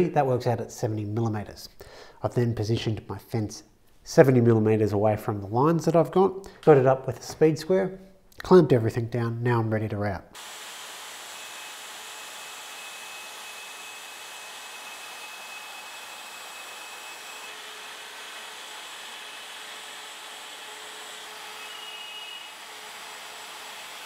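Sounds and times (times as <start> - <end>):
router cutting with whine: 10.4 - 24.0.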